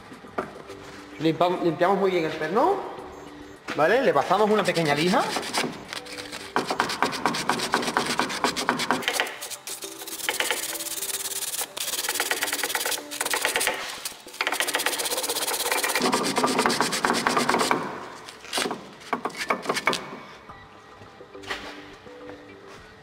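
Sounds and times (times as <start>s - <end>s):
sandpaper rubbing on metal pin: 4.4s - 17.7s.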